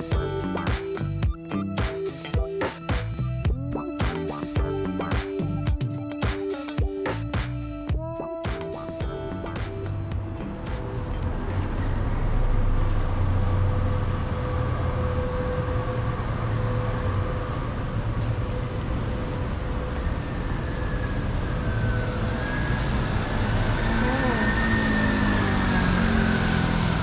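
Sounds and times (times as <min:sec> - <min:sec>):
vehicle engines passing: 0:09.2 - 0:27.0.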